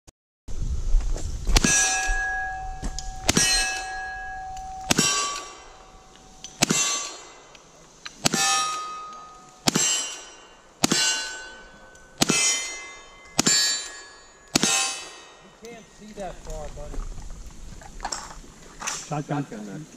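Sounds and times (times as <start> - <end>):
steel plate ringing: 1.6 - 7.6, 8.2 - 16.4
rifle shots: 3.2 - 4.0, 4.9 - 5.8, 6.6 - 7.5, 8.2 - 15.4.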